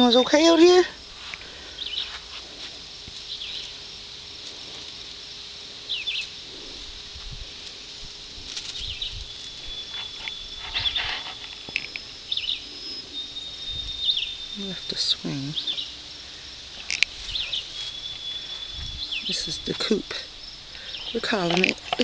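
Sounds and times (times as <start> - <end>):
birds chirping: 0.0 - 2.3, 3.2 - 3.9, 5.8 - 7.0, 8.7 - 22.0
thin steady high tone: 0.0 - 22.0.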